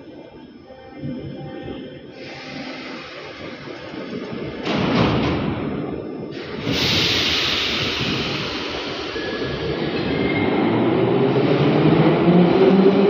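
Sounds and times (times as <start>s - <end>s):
sharp air hiss: 6.4s - 9.2s.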